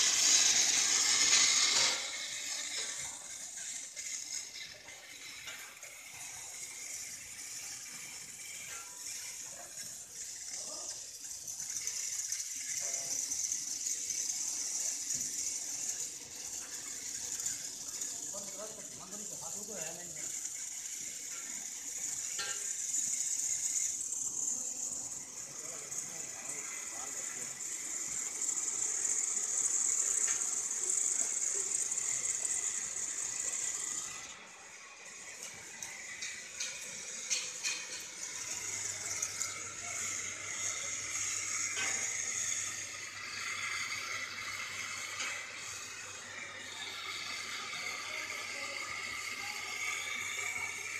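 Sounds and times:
steam hissing: 0.0 - 50.9.

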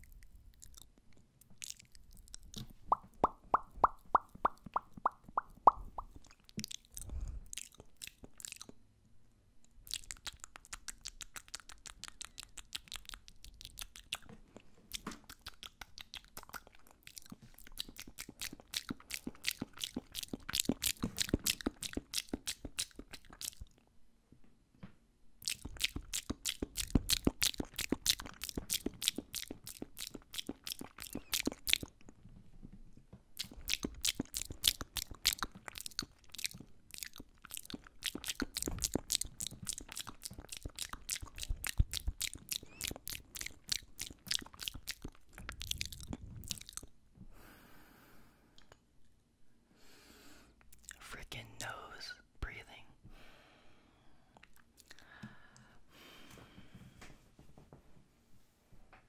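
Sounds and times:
tongue clicks: 0.0 - 8.8, 9.6 - 23.8, 25.4 - 32.2, 33.4 - 46.9, 50.6 - 51.7
wet lip smacks: 0.0 - 8.8, 9.8 - 23.8, 25.4 - 32.2, 33.4 - 46.9, 50.6 - 51.0.

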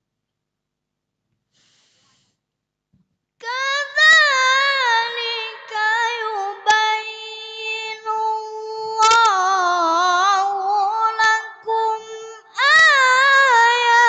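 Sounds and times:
boy reciting melodically: 3.4 - 14.0.

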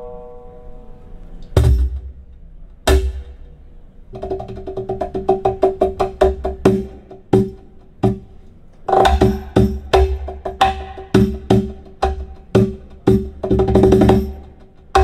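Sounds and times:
percussion music over loudspeakers: 8.9 - 15.0.

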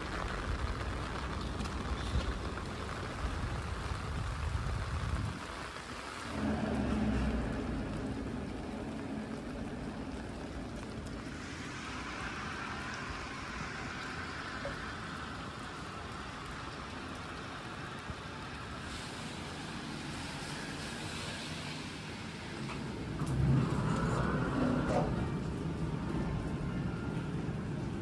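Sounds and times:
car tyres hissing on wet road: 0.0 - 28.0
steady rain: 0.0 - 28.0
low rumble: 6.2 - 17.4, 22.9 - 28.0.

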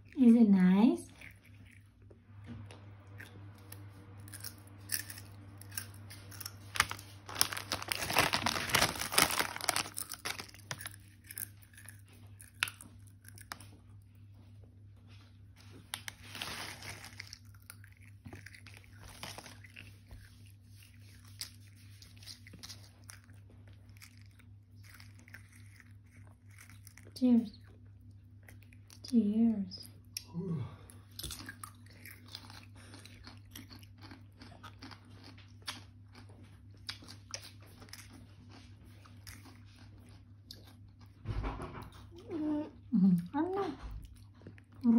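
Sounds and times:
toddler crunching crisps: 3.0 - 14.1, 15.7 - 29.1, 31.1 - 41.2.

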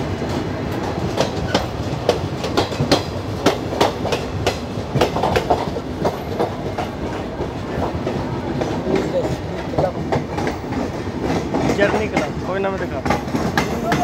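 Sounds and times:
train running rumble: 0.0 - 14.0
train wheels clattering over joints: 0.2 - 14.0.

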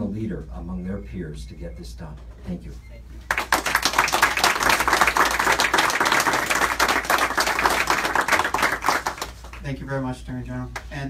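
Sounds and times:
audience applauding: 3.3 - 9.6.

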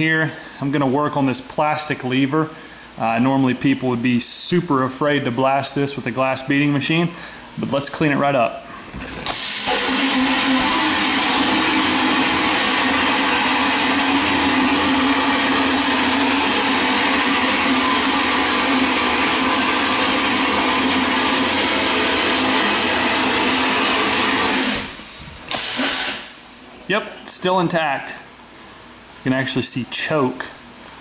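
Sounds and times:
vapor blasting gun hissing: 9.2 - 26.8.

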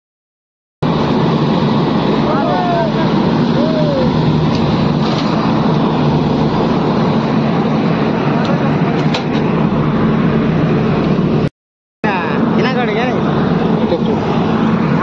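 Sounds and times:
track rumble and rush: 0.8 - 11.5
rail car engine hum: 0.8 - 15.0.

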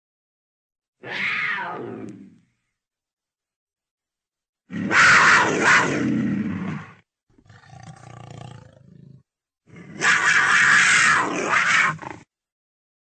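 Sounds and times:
leopard roaring: 4.7 - 12.3.

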